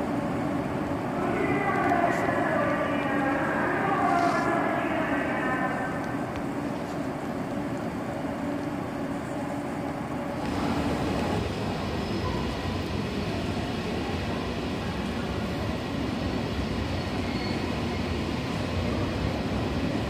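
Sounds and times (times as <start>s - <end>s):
train running on track: 0.0s - 20.0s.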